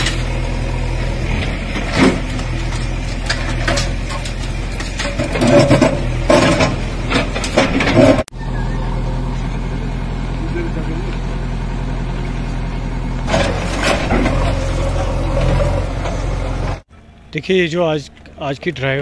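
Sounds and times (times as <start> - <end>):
diesel engine running: 0.0 - 19.0
masonry breaking and rubble falling: 1.8 - 8.2.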